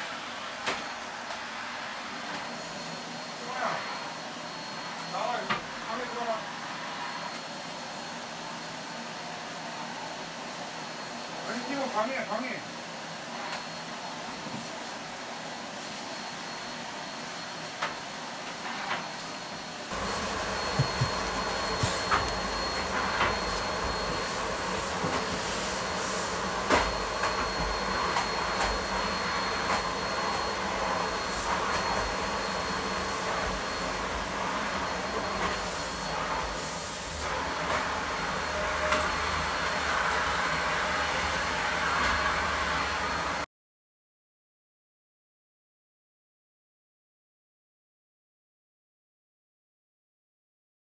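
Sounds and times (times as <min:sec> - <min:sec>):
vacuum cleaner running: 0:00.0 - 0:43.5
electric blower motor whining: 0:19.8 - 0:43.4.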